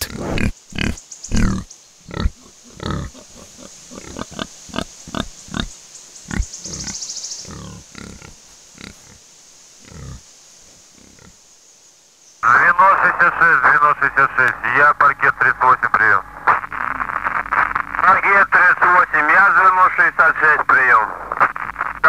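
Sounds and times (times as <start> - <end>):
wild boar grunting: 0.0 - 9.2, 9.8 - 11.4.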